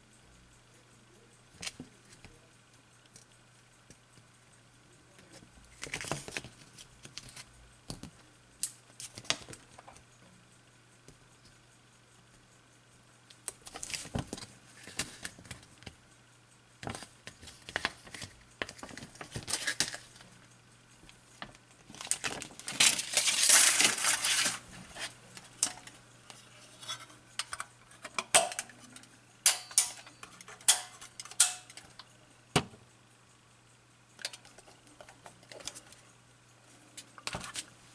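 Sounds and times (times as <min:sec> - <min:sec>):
film strip and spool handling: 0:16.8 - 0:20.3, 0:21.8 - 0:32.1
film crackling rustle: 0:16.8 - 0:20.4, 0:21.1 - 0:32.1.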